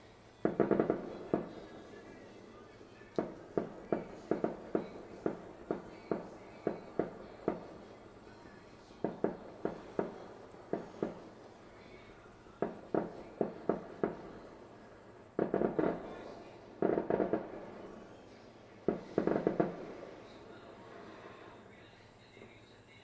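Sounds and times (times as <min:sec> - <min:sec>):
distant fireworks bangs: 0:00.0 - 0:22.6.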